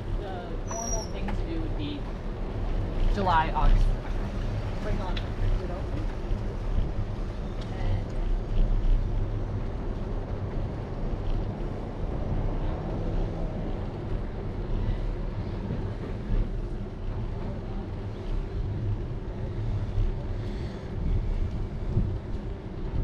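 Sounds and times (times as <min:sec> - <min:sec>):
bicycle road noise: 0:00.0 - 0:23.0
wind buffeting microphone: 0:00.0 - 0:23.0.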